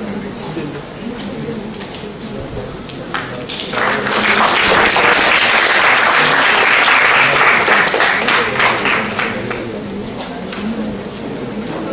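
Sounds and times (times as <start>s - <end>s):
audience applauding: 3.1s - 9.8s.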